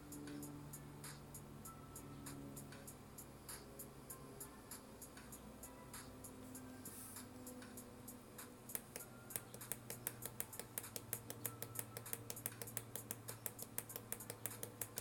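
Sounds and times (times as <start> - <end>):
faint low hum: 0.0 - 15.0
pushbutton clicking rapidly: 8.7 - 15.0.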